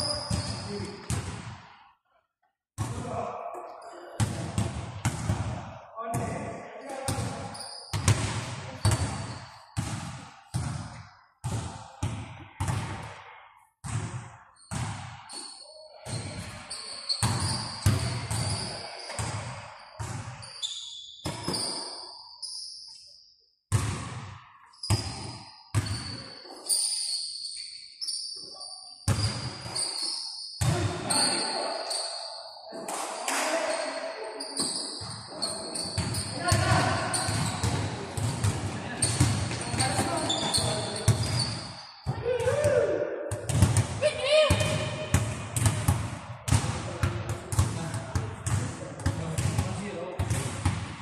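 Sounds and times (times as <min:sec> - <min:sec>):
sneaker squeaks: 0:00.0 - 0:01.1, 0:06.8 - 0:09.6, 0:14.6 - 0:23.2, 0:24.7 - 0:42.2
basketball bouncing on gym floor: 0:00.0 - 0:01.6, 0:04.2 - 0:06.4, 0:07.1 - 0:13.1, 0:13.8 - 0:15.2, 0:16.1 - 0:20.4, 0:23.7 - 0:26.2, 0:36.0 - 0:51.0.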